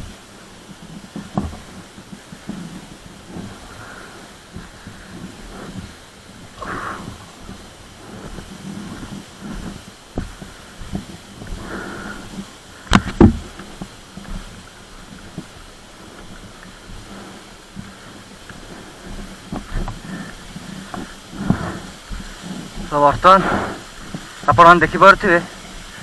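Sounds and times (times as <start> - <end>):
waterfall rushing: 0.0 - 26.0
sharp knocks: 12.9 - 13.5.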